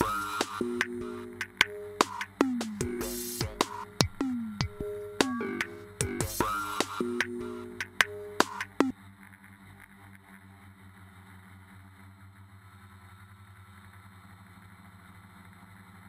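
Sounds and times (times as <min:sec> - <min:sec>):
drone motors humming: 0:00.0 - 0:16.0.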